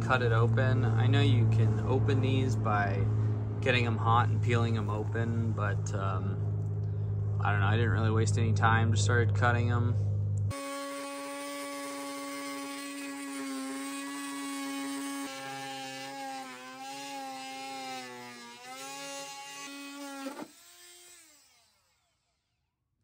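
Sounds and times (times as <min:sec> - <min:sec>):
rotary tool whining: 0:10.5 - 0:22.6.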